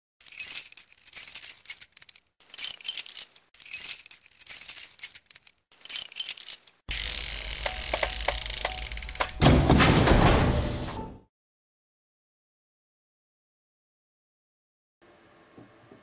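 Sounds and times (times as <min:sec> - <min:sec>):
metallic jingling: 0:00.2 - 0:06.8.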